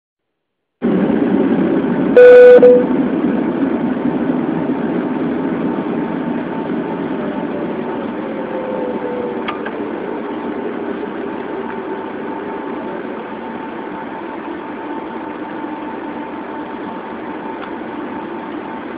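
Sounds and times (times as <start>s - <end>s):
vehicle engine and road rumble: 0.8s - 18.9s
short horn honk: 2.2s - 2.9s.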